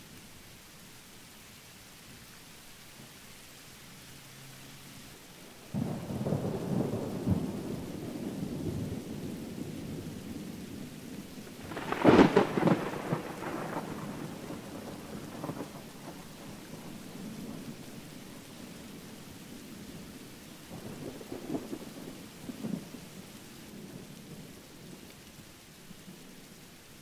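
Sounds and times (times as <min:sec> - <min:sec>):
steady rain: 0:00.0 - 0:27.0
thunder rumbling: 0:05.7 - 0:25.1
sharp thunderclap: 0:11.6 - 0:15.8.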